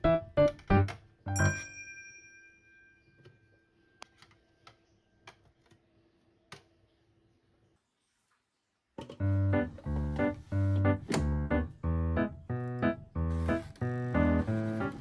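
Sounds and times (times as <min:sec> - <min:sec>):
piano note: 0:00.0 - 0:01.6.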